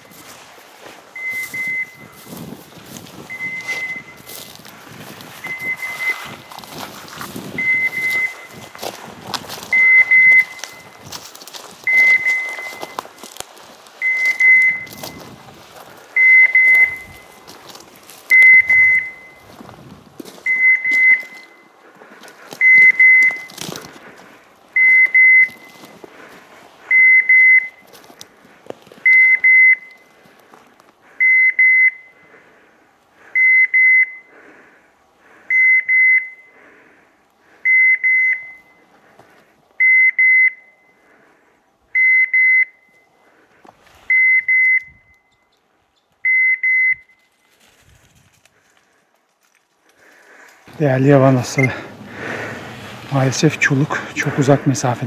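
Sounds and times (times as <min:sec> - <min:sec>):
rustling through dry brush: 0:00.0 - 0:24.8, 0:25.4 - 0:26.9, 0:27.7 - 0:31.2, 0:43.1 - 0:44.2, 0:47.2 - 0:55.0.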